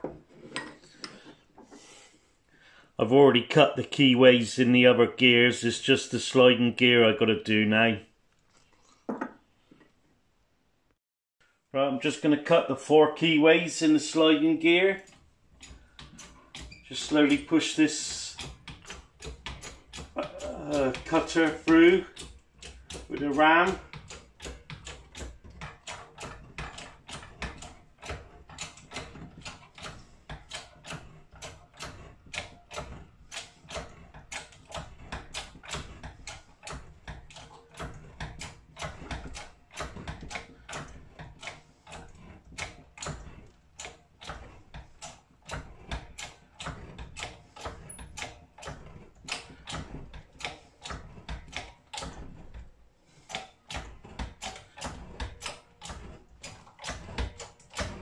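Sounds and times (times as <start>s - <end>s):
sharp mechanical clicks: 15.0s - 58.0s.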